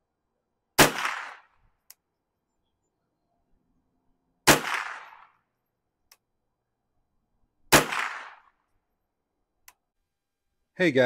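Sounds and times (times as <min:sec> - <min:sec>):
rifle shots with echo: 0:00.8 - 0:01.6, 0:04.4 - 0:05.4, 0:07.7 - 0:08.6.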